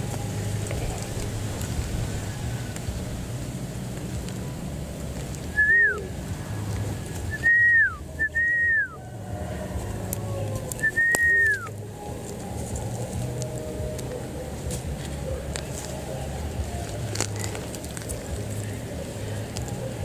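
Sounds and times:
whistled notes sliding down: 5.5 - 6.1, 7.3 - 9.0, 10.8 - 11.8.

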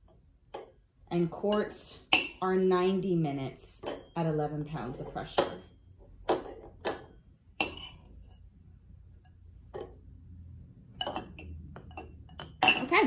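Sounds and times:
metal clinking against glass jar: 6.3 - 8.1, 11.0 - 13.0.

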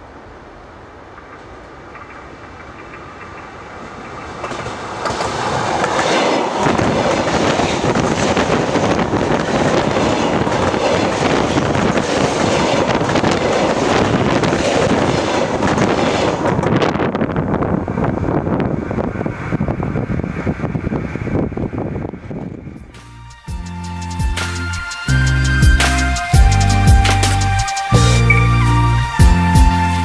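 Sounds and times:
train wheels clattering over rails: 1.2 - 17.2.

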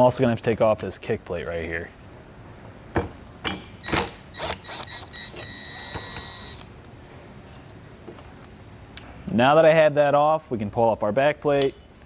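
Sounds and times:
cordless drill whining: 4.4 - 6.6.

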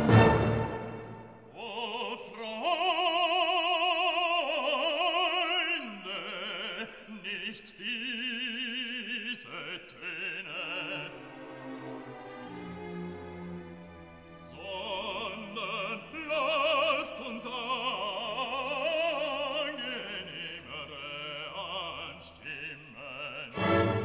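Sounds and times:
operatic voice singing: 1.4 - 11.6, 14.4 - 24.0.

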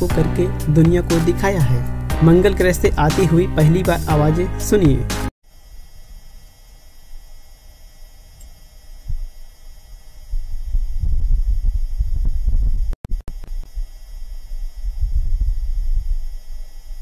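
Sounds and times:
faint steady hum: 5.4 - 17.0
low rumbling wind gust: 14.6 - 16.4.

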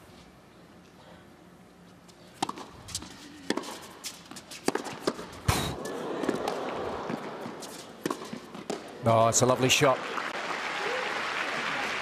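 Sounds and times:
tennis ball struck by rackets: 2.4 - 8.9
crowd noise: 5.5 - 12.0.

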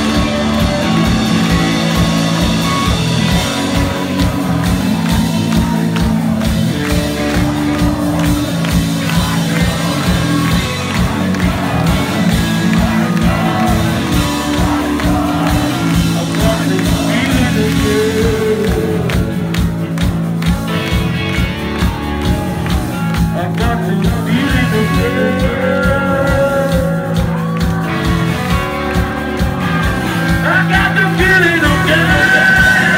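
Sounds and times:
bass guitar: 0.0 - 32.9
drum beat: 0.0 - 32.9
electric guitar: 0.0 - 32.9
person singing into a microphone: 7.3 - 19.6, 23.3 - 27.4, 30.3 - 32.9.

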